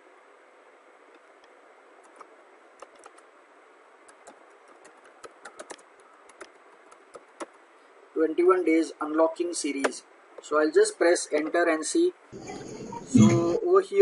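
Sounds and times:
steady low hiss: 0.0 - 14.0
computer keyboard keystrokes: 2.0 - 3.2, 4.1 - 7.6.

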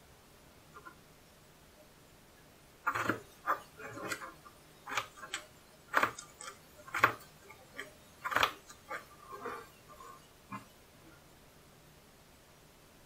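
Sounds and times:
knife cutting potato on board: 2.9 - 10.7.

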